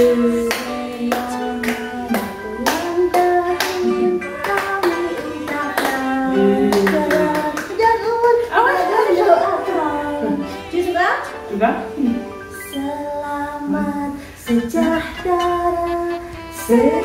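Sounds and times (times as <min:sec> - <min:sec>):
people singing together: 0:00.0 - 0:10.8, 0:11.6 - 0:17.0
hands clapping on the beat: 0:00.5 - 0:06.1, 0:06.7 - 0:07.8.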